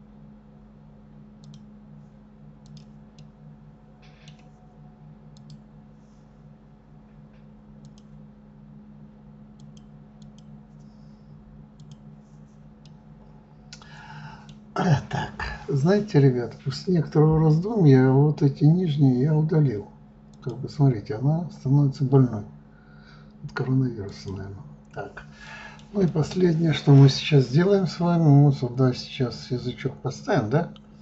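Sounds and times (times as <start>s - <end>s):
steady low hum: 0.0s - 31.0s
computer mouse clicks: 1.4s - 1.7s, 2.6s - 3.3s, 4.0s - 4.6s, 5.4s - 5.6s, 7.8s - 8.2s, 9.6s - 10.9s, 11.8s - 12.1s, 20.3s - 20.6s.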